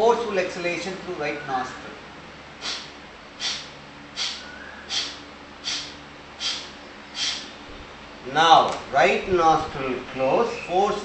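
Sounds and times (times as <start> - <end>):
forceful nasal exhalations: 2.6 - 7.5.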